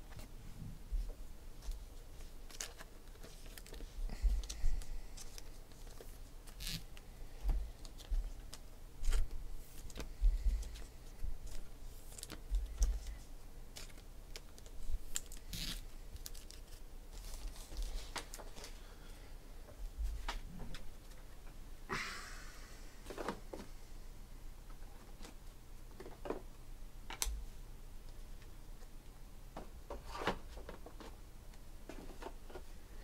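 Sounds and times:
plastic sleeves rustling: 0.0 - 19.2.

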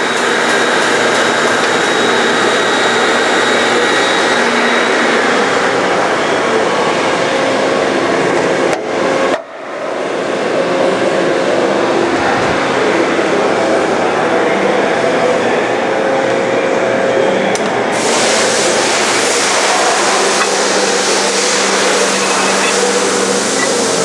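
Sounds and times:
bandsaw running: 18.0 - 24.0.

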